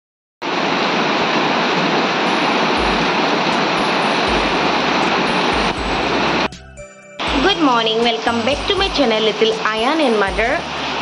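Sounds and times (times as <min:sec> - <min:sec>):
heavy rain on paving: 0:00.4 - 0:06.5, 0:08.6 - 0:11.0.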